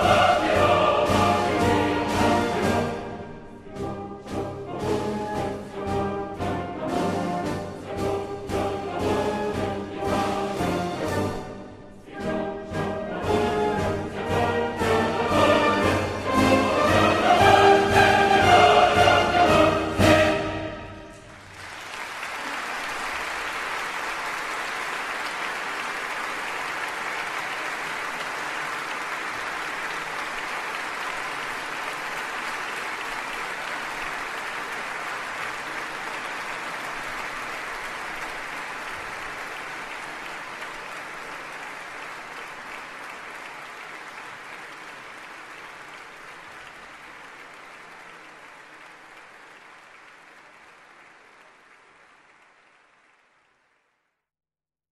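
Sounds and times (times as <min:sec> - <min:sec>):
audience applause: 0:00.0 - 0:03.0, 0:13.9 - 0:54.2.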